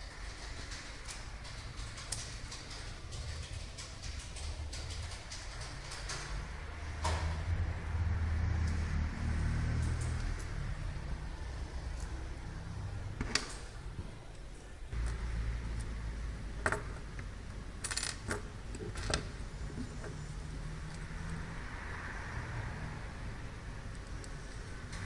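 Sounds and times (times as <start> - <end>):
metallic clicks and taps: 0.6 - 6.4.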